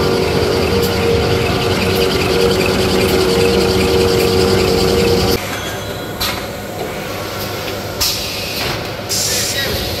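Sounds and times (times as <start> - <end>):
machine humming and whining: 0.0 - 7.4.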